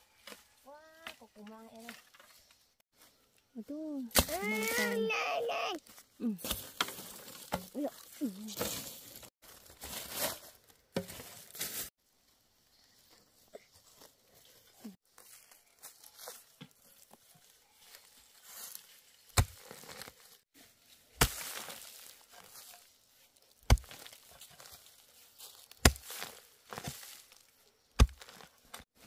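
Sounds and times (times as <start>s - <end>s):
hoe blade striking soil: 4.1s - 4.9s, 19.4s - 20.1s, 21.2s - 22.9s, 23.6s - 24.7s, 25.6s - 27.2s, 28.0s - 28.8s
dry leaves rustling: 5.8s - 11.9s, 15.1s - 29.0s.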